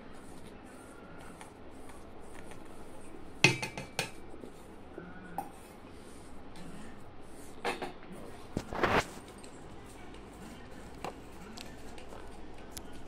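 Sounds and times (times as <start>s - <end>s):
whisk knocking against steel pot: 3.4s - 4.2s.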